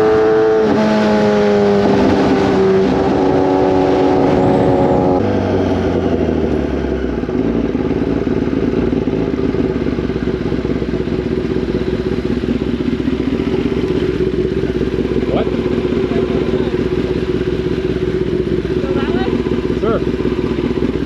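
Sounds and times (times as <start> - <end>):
motorcycle engine slowing to idle: 4.2 - 21.0.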